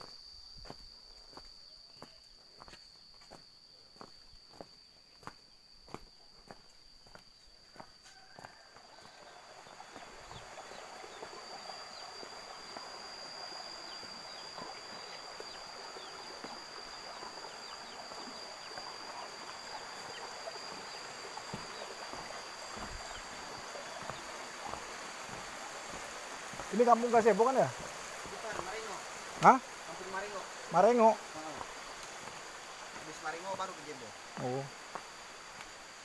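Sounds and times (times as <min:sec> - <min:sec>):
footsteps on bamboo slats: 0:00.0 - 0:08.6, 0:21.4 - 0:26.8, 0:27.7 - 0:29.6, 0:31.6 - 0:33.1
stream rushing over rocks: 0:18.9 - 0:33.5.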